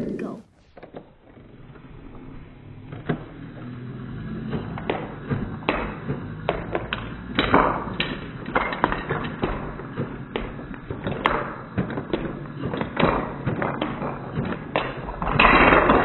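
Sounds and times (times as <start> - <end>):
foam darts striking wooden blocks: 4.2 - 16.0.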